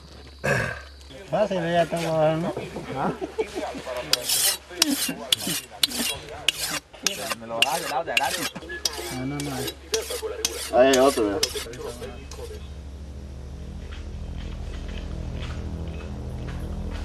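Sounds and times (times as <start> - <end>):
blade scraping on whetstone: 4.0 - 12.6.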